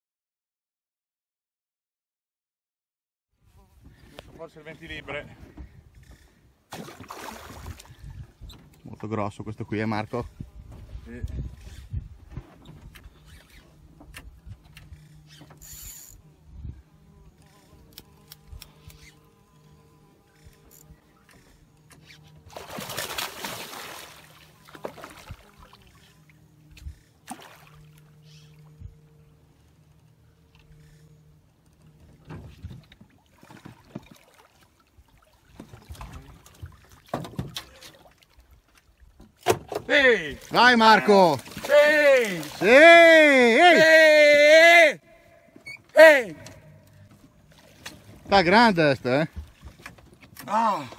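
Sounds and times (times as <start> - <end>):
fishing reel whirring: 14.7 - 16.4, 17.3 - 22.4
fish thrashing and splashing: 22.5 - 26.0, 27.2 - 28.0, 41.3 - 42.6.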